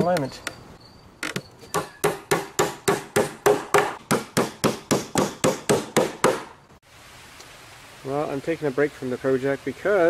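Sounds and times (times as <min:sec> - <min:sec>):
hammer driving nail into wood: 0:01.7 - 0:06.5.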